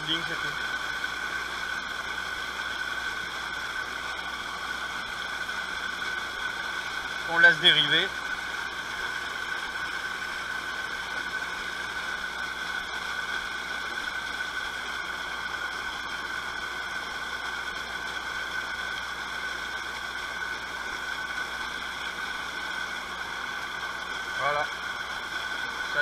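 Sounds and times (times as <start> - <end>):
high-pitched whine: 0.0 - 2.2, 6.2 - 12.9.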